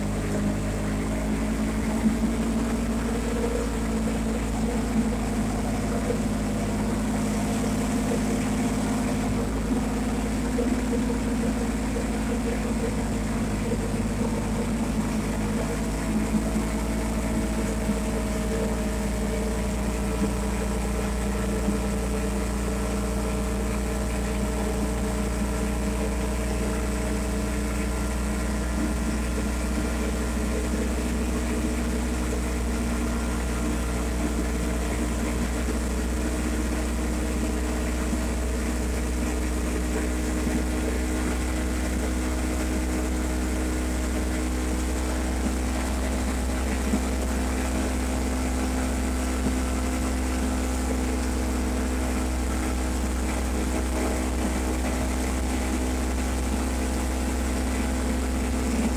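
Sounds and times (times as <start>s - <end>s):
atv engine droning: 0.0s - 58.9s.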